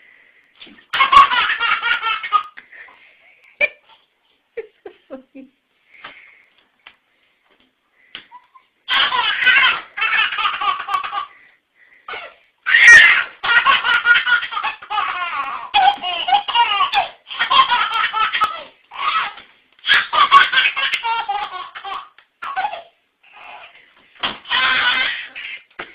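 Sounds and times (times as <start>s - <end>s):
baby laughing: 0.6s - 2.6s, 8.3s - 11.4s, 12.1s - 23.8s, 24.4s - 25.9s
baby squealing: 12.1s - 13.3s, 24.5s - 25.7s.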